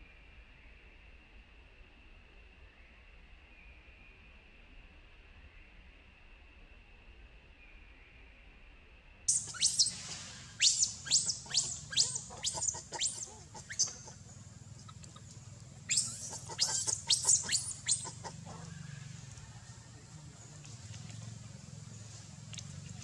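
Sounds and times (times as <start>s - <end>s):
infant monkey squealing: 9.3s - 18.9s.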